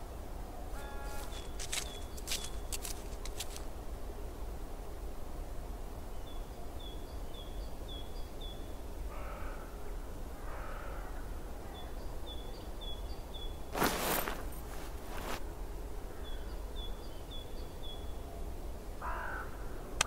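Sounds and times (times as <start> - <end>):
steady background hiss: 0.0 - 20.0
low cawing calls: 0.7 - 2.6, 9.1 - 11.8, 19.0 - 19.8
small bird chirping: 0.8 - 3.6.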